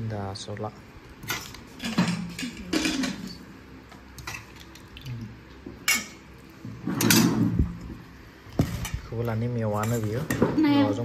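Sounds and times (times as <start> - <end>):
dishes and utensils clattering: 1.2 - 3.4, 5.8 - 6.2, 6.8 - 7.7.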